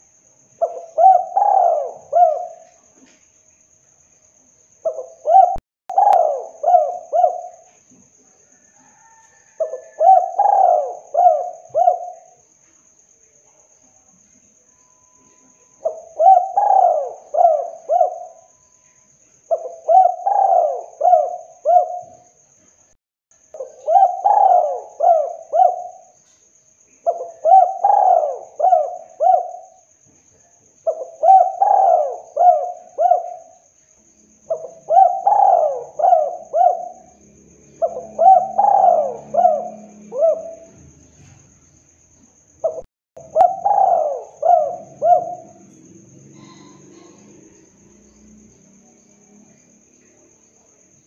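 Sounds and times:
dove cooing: 0.6s - 2.7s, 4.8s - 7.7s, 8.8s - 12.3s, 15.8s - 18.6s, 19.5s - 22.2s, 23.6s - 26.1s, 27.1s - 29.8s, 30.9s - 33.6s, 34.5s - 37.2s, 37.8s - 41.0s, 42.6s - 47.4s.

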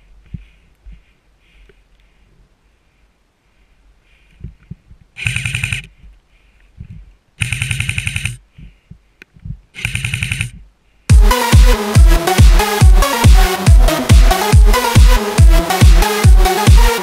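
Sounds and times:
electronic dance music: 11.1s - 17.0s.

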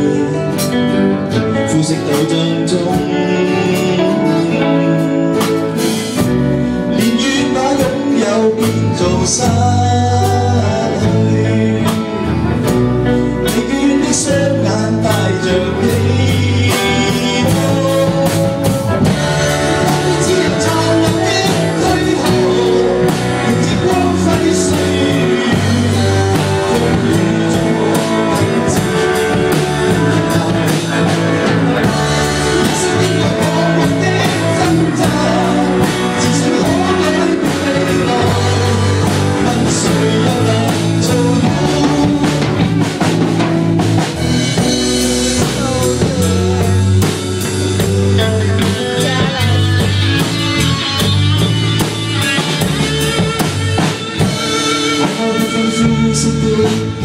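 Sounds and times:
acoustic guitar: 0.0s - 57.0s
electric guitar: 0.0s - 57.0s.

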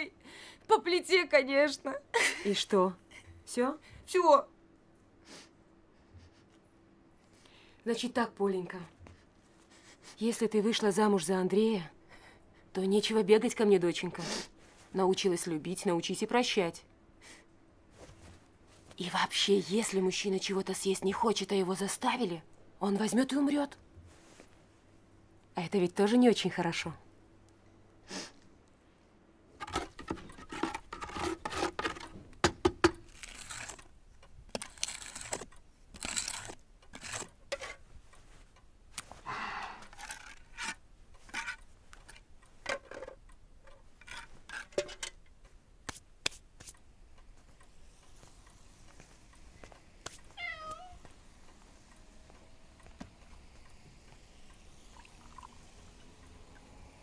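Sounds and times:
cat meowing: 50.4s - 51.1s.

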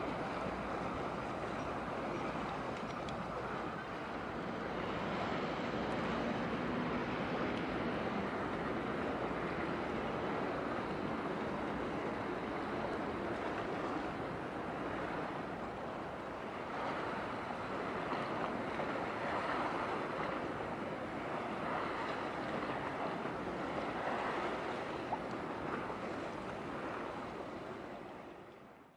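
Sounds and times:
sea water washing: 0.0s - 28.4s.

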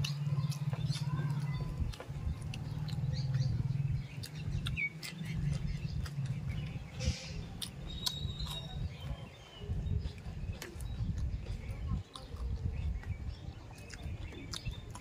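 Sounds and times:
bird chirping: 0.0s - 15.0s
man chewing and lip smacking: 0.0s - 15.0s.

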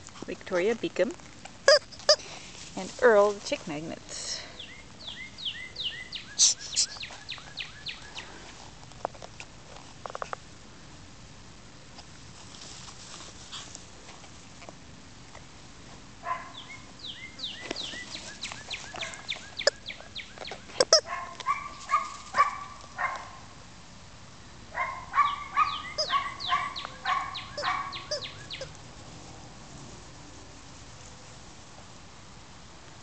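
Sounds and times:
rubber chicken toys squeaking: 1.7s - 2.3s, 17.9s - 21.1s, 25.8s - 26.2s, 26.8s - 28.7s.

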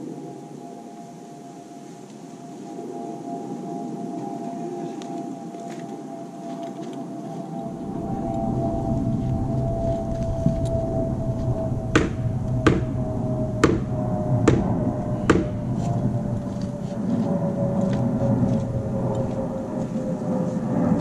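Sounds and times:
steady hum: 7.1s - 21.0s
hammer knocking nails into wood: 15.3s - 15.5s.

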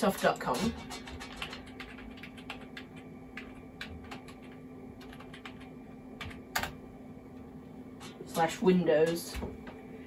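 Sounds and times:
computer keyboard typing: 0.9s - 6.8s.

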